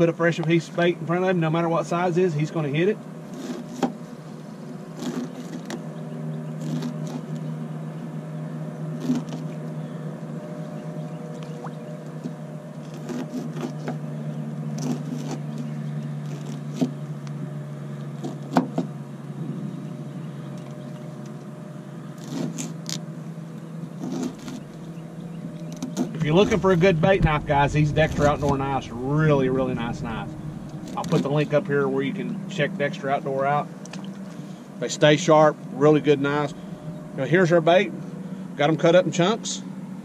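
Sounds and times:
steady low hum: 0.0s - 40.0s
knife cutting fish on board: 12.9s - 14.0s, 14.8s - 17.0s.

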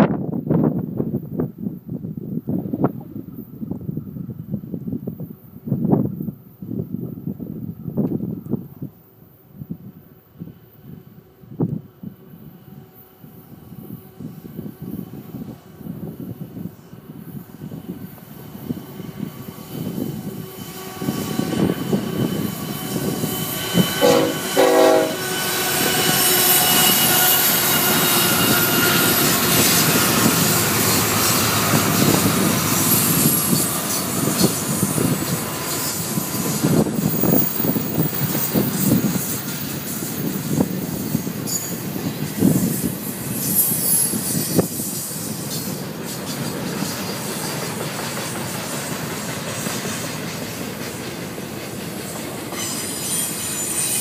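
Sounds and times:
freight train rumble: 0.0s - 54.0s
high-pitched wheel squeal: 17.4s - 41.8s, 42.4s - 45.8s, 52.5s - 54.0s
train horn blasts: 20.4s - 34.9s, 52.6s - 54.0s.

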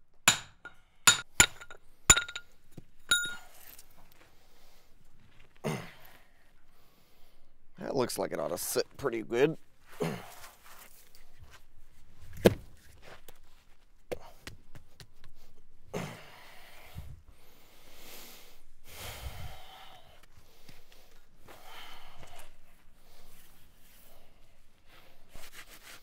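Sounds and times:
stone block knocking on ground: 0.3s - 2.4s, 3.1s - 3.4s
soft breathy rustles: 19.2s - 26.0s.

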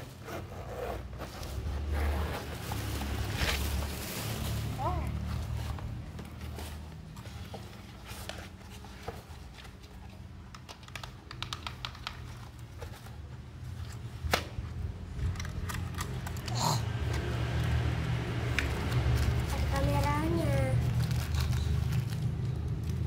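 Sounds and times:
plastic clicks and taps: 10.5s - 12.3s.

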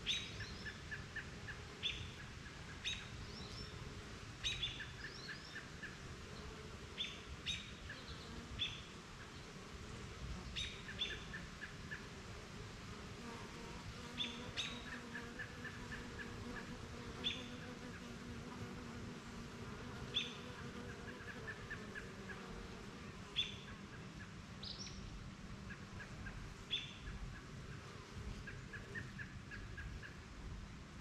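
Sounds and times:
bird chirping: 4.4s - 8.8s
bees buzzing: 9.6s - 23.8s.

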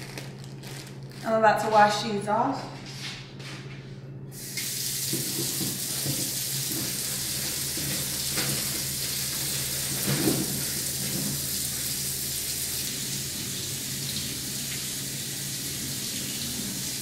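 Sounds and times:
faucet running into sink: 4.4s - 17.0s.

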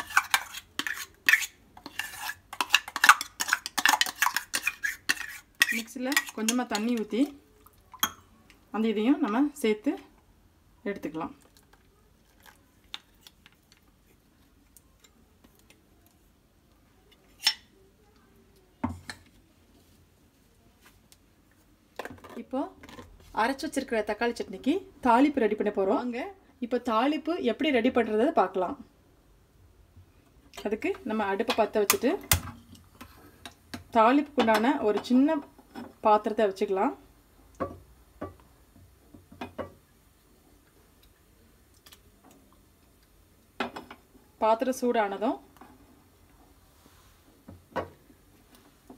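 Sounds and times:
spoon scraping steel jar: 0.0s - 7.1s
low steady background noise: 0.0s - 48.9s.

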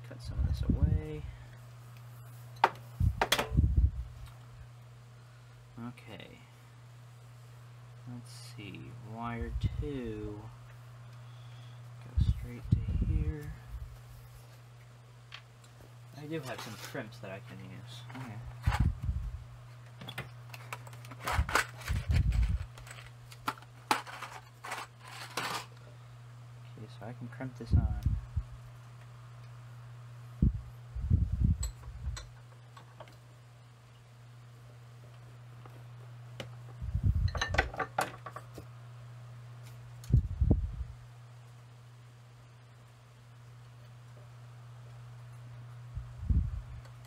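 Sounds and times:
steady low hum: 0.0s - 47.0s
small parts clicking and rattling: 20.1s - 25.8s.

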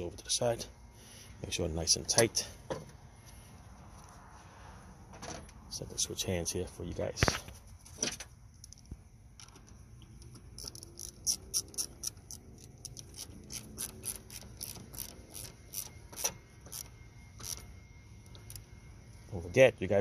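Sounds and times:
ratchet wrench clicking: 10.6s - 17.6s.

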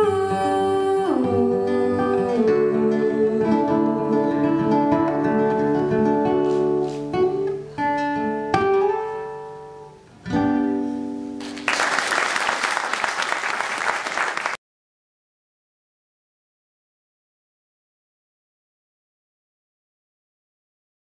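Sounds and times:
acoustic guitar strumming chords: 0.0s - 11.6s
audience applauding: 11.4s - 14.6s.

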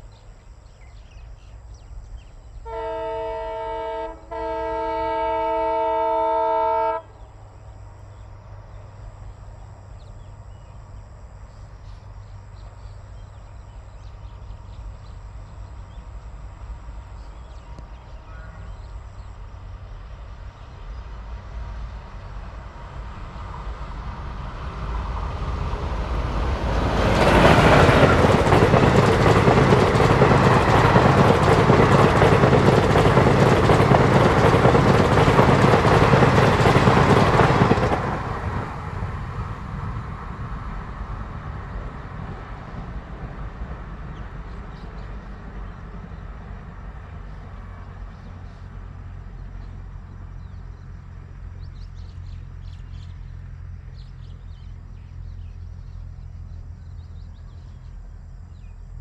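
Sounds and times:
train passing at speed: 0.0s - 58.8s
train rumble: 0.0s - 59.0s
locomotive horn blasts: 2.6s - 7.1s.

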